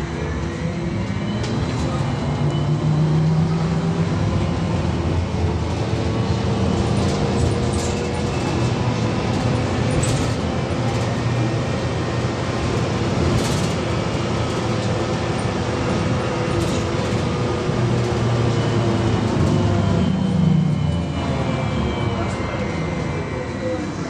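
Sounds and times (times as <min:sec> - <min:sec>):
trolleybus running and tyre noise: 0:00.0 - 0:24.0.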